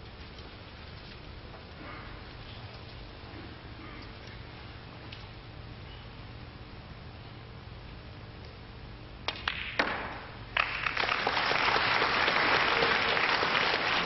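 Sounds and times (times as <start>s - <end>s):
audience applause: 10.6s - 14.0s.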